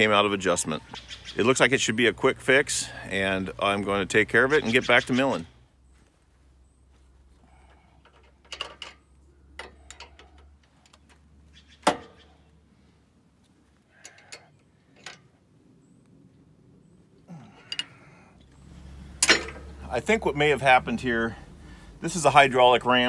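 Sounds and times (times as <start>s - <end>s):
metal clanks: 8.0s - 11.2s, 19.1s - 19.8s
wrenches clinking on bolts: 8.0s - 11.2s, 17.6s - 18.1s, 19.1s - 19.8s.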